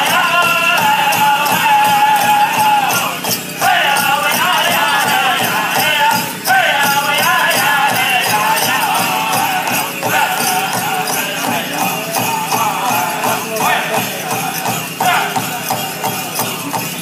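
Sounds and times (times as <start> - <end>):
bells jingling: 0.0 - 17.0
group singing in high voices: 0.0 - 17.0
steady drumbeat: 0.0 - 17.0.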